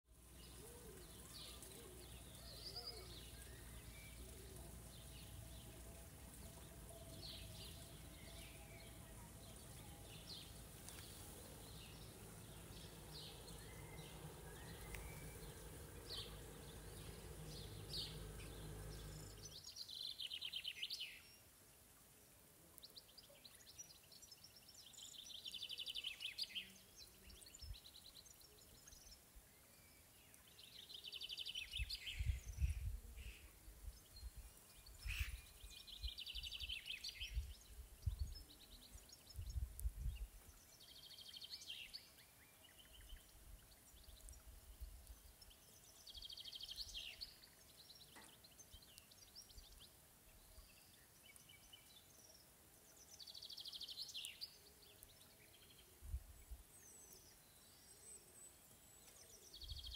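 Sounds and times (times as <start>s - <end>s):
songbirds chirping and singing: 0.2s - 21.5s, 22.8s - 59.9s
steady low rumble: 7.5s - 19.5s.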